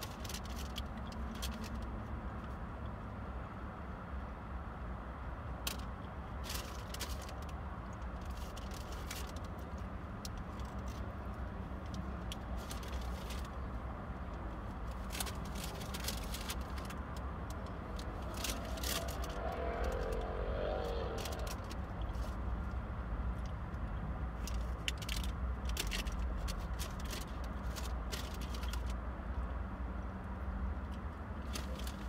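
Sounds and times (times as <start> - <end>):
traffic rumble: 0.0 - 32.0
engine note: 17.5 - 22.3.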